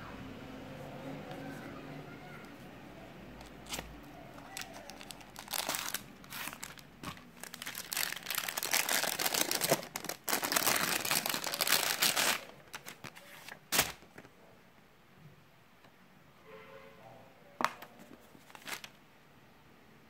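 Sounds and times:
plastic bag crinkling: 3.4 - 14.1, 18.2 - 19.0.

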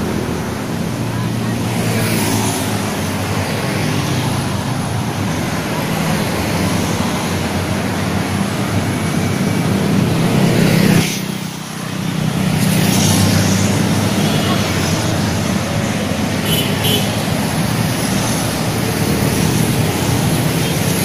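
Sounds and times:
cars and motorcycles passing: 0.0 - 21.0.

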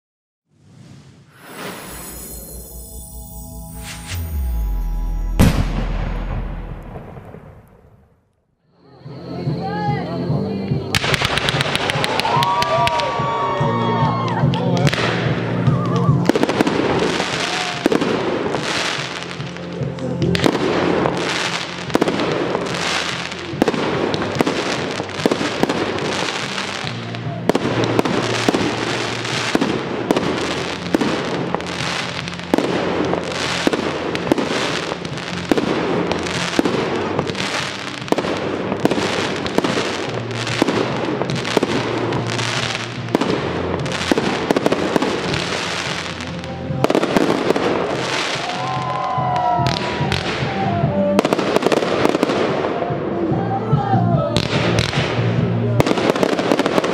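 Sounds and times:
fireworks bangs and crackles: 0.6 - 3.0, 4.1 - 8.3, 10.7 - 56.9
music playing: 1.4 - 7.5, 8.7 - 56.9.

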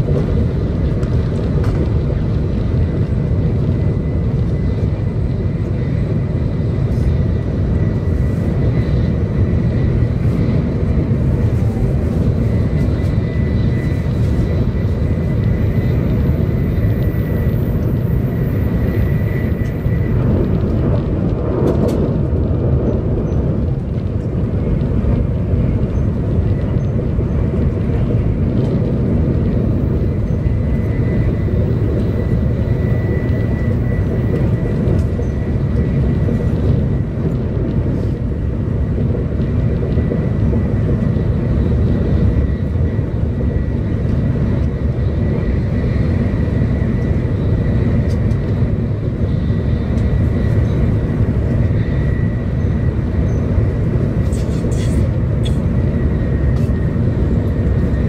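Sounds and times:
train wheels rumbling: 0.0 - 58.0.

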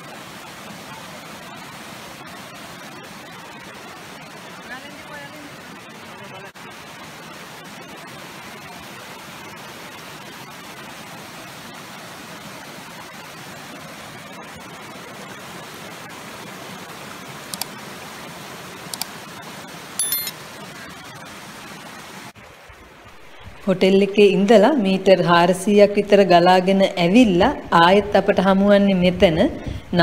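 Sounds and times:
water rushing over terraces: 0.0 - 23.7
brief high-pitched sounds: 20.0 - 20.3.

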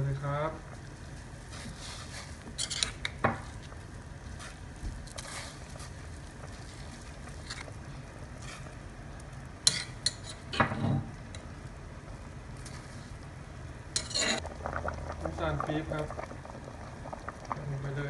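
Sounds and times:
boiling pot rumble: 0.0 - 18.0
metal spoon scraping pot: 2.6 - 3.1, 9.7 - 10.9, 14.0 - 14.4.

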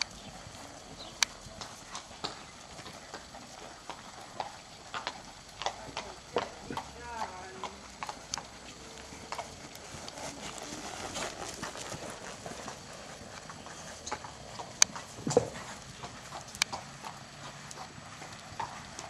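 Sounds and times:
muffled hoofbeats on sand: 0.0 - 19.0
sharp clicks: 1.2 - 2.4, 16.5 - 16.8.

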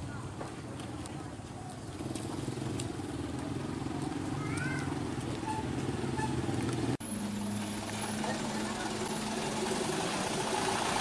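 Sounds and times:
small motorcycle engine running: 1.9 - 11.0.

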